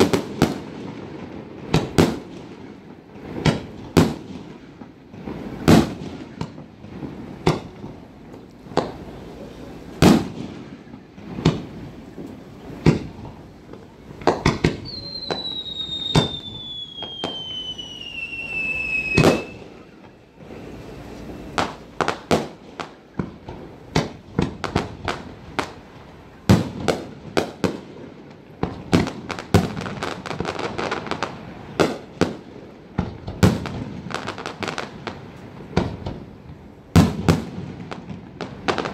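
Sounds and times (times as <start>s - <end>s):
fireworks bursting in bangs: 0.0s - 20.7s, 21.3s - 38.9s
fireworks crackling: 0.0s - 38.9s
falling firework whistle: 14.3s - 22.5s.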